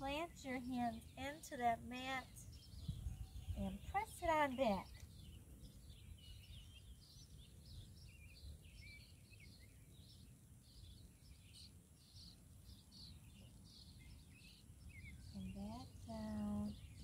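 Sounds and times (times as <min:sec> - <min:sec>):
faint bird chirps: 0:00.0 - 0:17.0.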